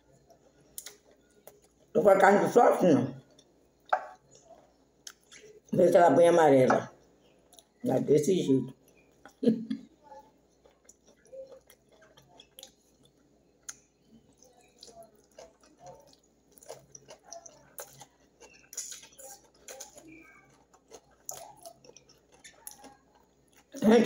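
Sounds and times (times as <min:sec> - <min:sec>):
fingers squishing food: 0:08.8 - 0:23.8
lips smacking and chewing: 0:10.0 - 0:23.8.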